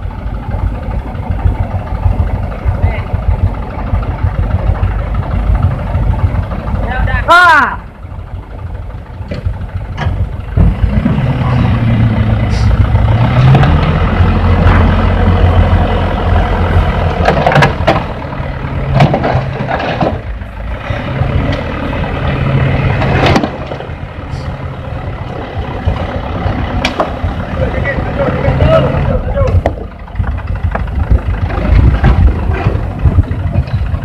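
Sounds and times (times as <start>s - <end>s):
diesel truck engine revving: 0.0s - 34.0s
truck bed knocking: 9.0s - 11.2s, 16.8s - 20.4s, 29.4s - 34.0s.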